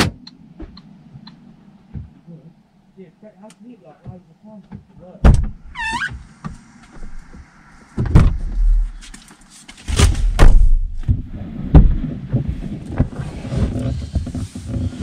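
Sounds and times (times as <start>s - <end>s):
knocks and thuds in car: 1.9s - 2.2s, 4.0s - 5.6s, 6.4s - 8.8s, 10.0s - 15.0s.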